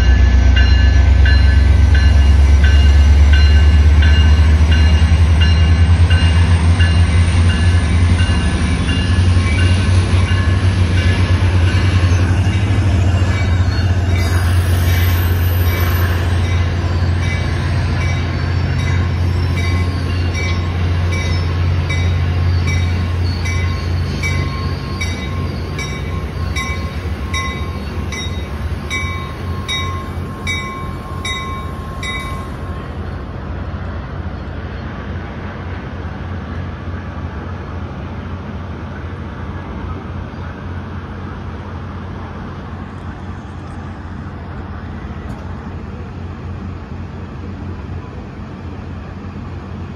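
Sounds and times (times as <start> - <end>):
train bell ringing: 0.0 - 33.3
train rumbling: 0.0 - 49.9.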